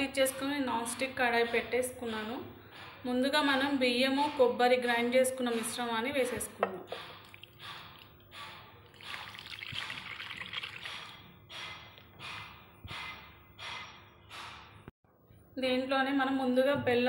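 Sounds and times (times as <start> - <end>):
short splashes of batter: 8.9 - 11.2.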